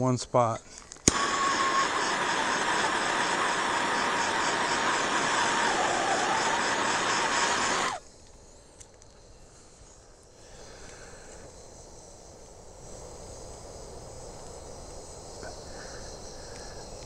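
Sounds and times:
gas torch flame hissing: 0:01.1 - 0:08.0.

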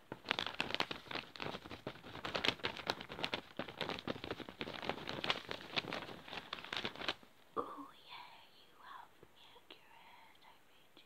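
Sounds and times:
crackling and scratching on microphone: 0:00.0 - 0:07.3.

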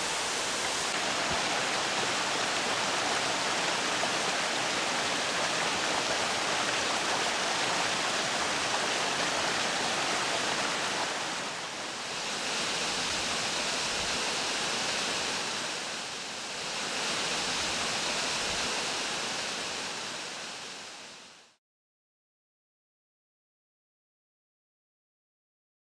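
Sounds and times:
water rushing over rock: 0:00.0 - 0:21.0.

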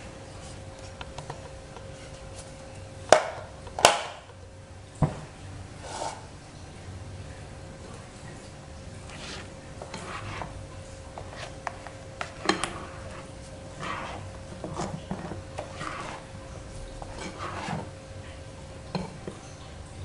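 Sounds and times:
spatula scraping batter from bowl: 0:05.8 - 0:06.3, 0:09.1 - 0:18.0.

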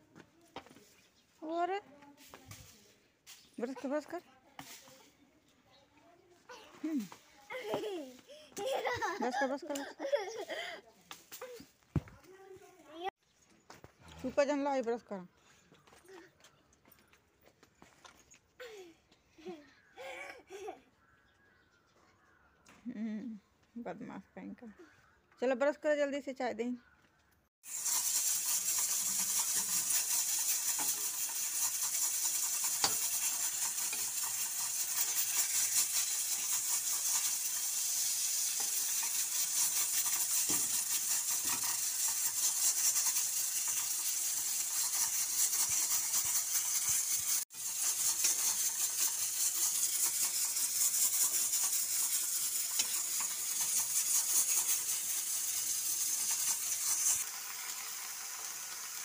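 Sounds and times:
sizzling in oil: 0:27.6 - 0:59.0
metal spatula clicks and scrapes: 0:27.7 - 0:57.3.

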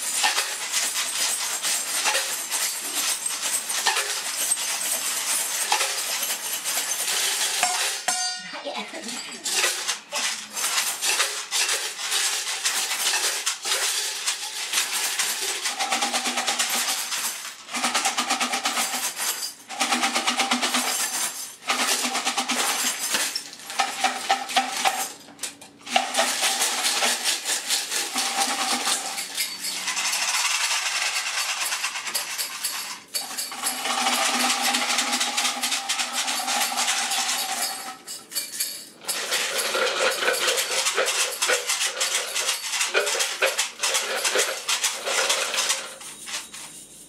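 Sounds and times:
shakers rattling and jingling: 0:00.0 - 0:25.2, 0:25.8 - 0:47.0.

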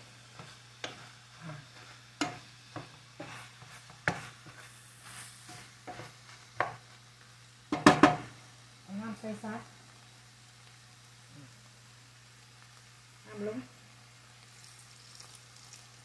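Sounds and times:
faint sizzle: 0:00.0 - 0:16.0
spatula scraping frying pan: 0:00.1 - 0:06.9.

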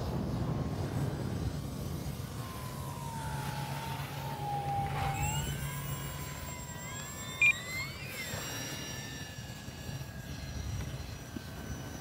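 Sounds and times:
wind rumble on microphone: 0:00.0 - 0:06.4, 0:09.4 - 0:12.0
electric motor and propeller whining: 0:00.0 - 0:12.0.

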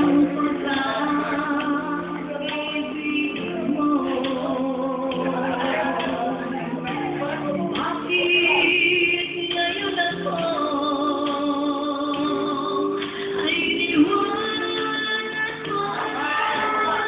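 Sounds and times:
music with singing voice: 0:00.0 - 0:17.0.

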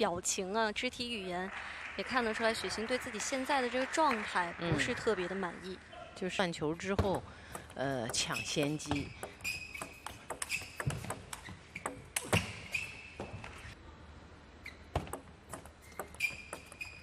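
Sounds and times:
shoes squeaking on floor: 0:08.1 - 0:13.8, 0:14.6 - 0:17.0.

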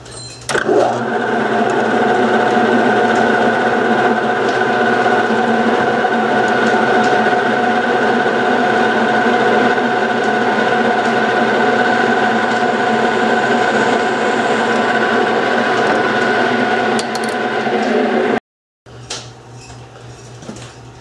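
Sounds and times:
metal lathe whining: 0:00.6 - 0:18.4
drill cutting metal: 0:11.8 - 0:17.4.

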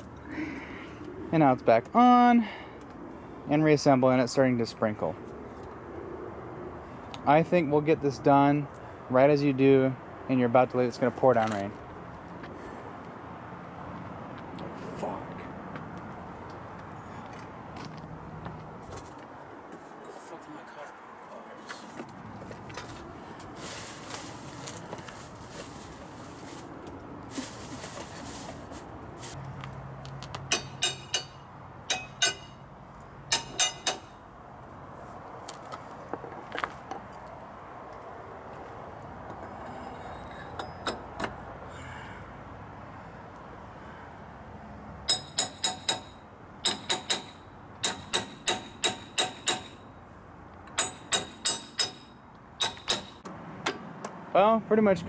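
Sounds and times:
hammer striking metal: 0:30.5 - 0:32.6, 0:33.3 - 0:34.2, 0:45.1 - 0:49.8, 0:50.8 - 0:53.8
metal tools clinking: 0:39.4 - 0:41.3.

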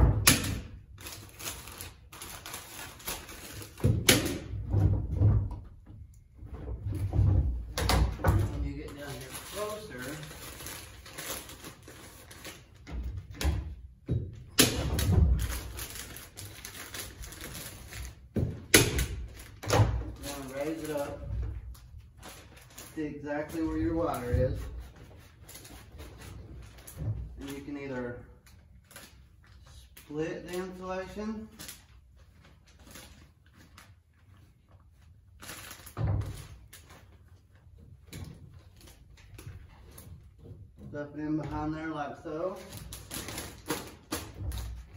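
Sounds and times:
insulation rustling: 0:04.4 - 0:13.3.

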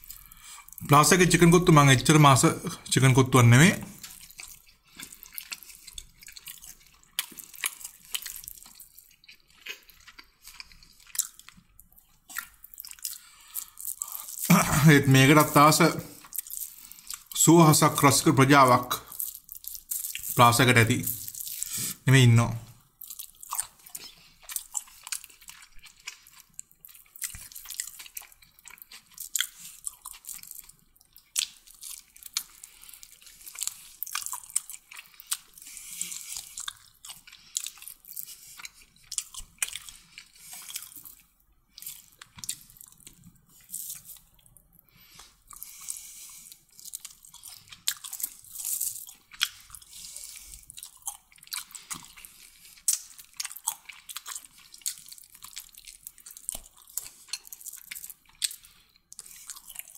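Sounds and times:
person chewing food: 0:00.0 - 0:01.9, 0:03.6 - 0:59.9.

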